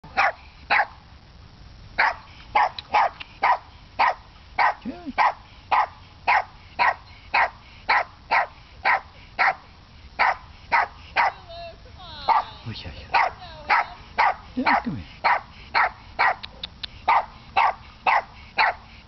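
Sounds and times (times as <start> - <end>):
small dog barking: 0.1 - 1.0, 2.0 - 18.8.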